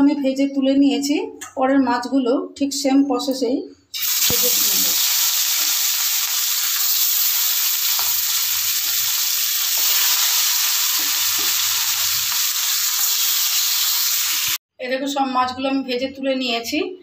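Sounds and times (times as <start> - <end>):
fish frying in sizzling oil: 4.0 - 14.6.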